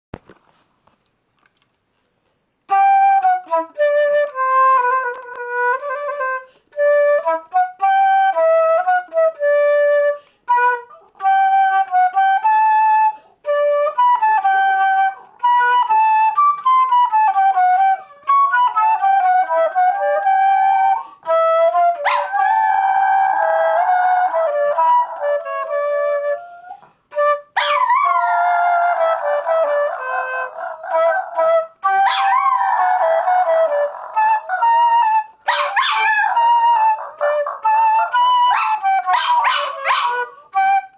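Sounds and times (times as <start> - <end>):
wind instrument tune: 2.7 - 40.9
dog howling: 21.8 - 26.9, 27.6 - 40.6.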